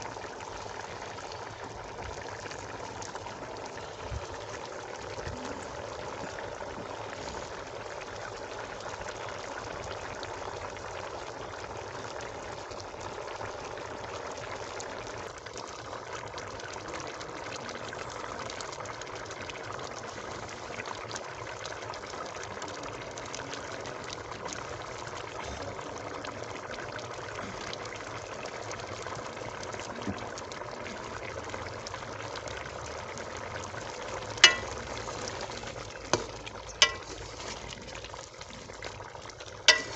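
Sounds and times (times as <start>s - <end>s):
curry bubbling in a pot: 0.0s - 39.9s
steel ladle clinking in pot: 34.4s - 35.4s, 36.1s - 37.8s, 39.7s - 39.9s.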